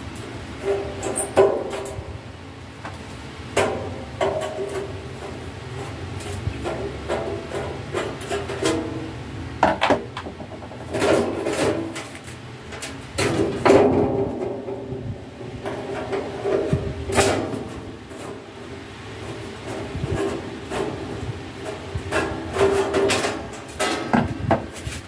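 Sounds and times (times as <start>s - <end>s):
metal cover rattling and scraping: 0.4s - 2.2s, 3.5s - 25.0s
sharp knocks: 9.6s - 11.2s.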